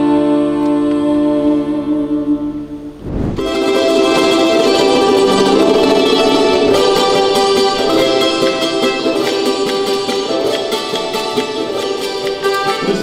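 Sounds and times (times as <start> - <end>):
low thump: 3.0 - 3.6
plucked guitar and strings: 3.2 - 13.0
accordion chord: 3.4 - 13.0.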